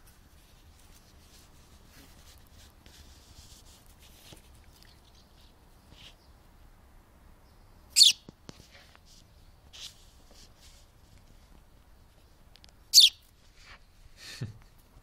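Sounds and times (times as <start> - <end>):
sparrow fledgling chirping: 7.5 - 8.3, 12.9 - 13.3.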